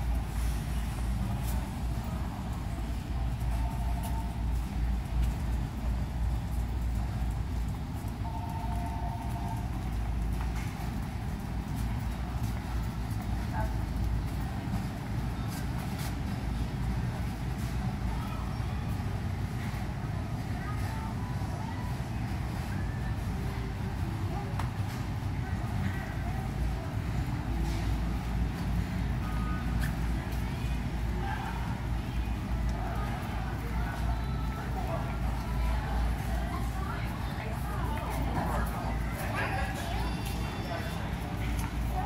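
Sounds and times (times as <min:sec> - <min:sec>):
store background rumble: 0:00.0 - 0:42.0.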